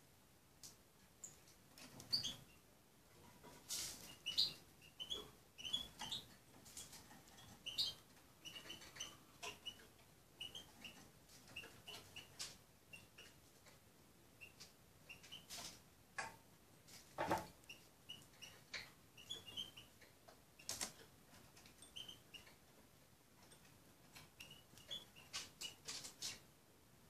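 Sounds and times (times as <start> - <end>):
bird chirping: 1.2 - 2.6, 4.0 - 13.8, 14.4 - 15.7, 17.6 - 22.6, 23.4 - 26.4.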